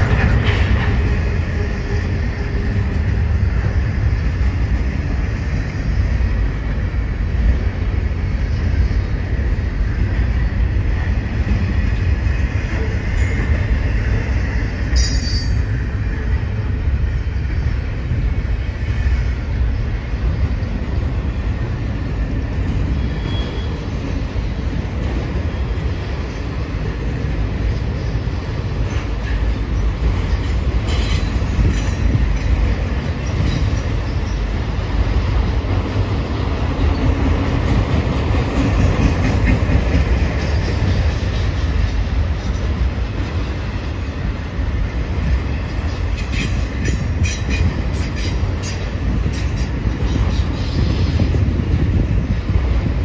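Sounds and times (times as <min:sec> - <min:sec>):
rumble of steel wheels on rail: 0:00.0 - 0:53.0
high wheel squeals: 0:22.9 - 0:23.9.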